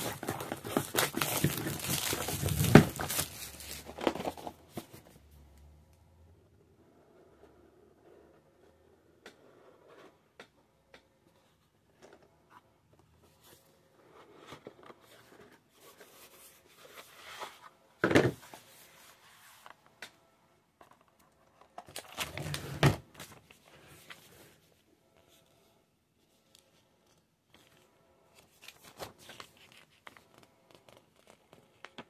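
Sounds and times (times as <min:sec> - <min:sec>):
cardboard boxes clicking and scraping: 0:00.0 - 0:05.0
paper rustling: 0:00.0 - 0:05.1, 0:28.4 - 0:32.0.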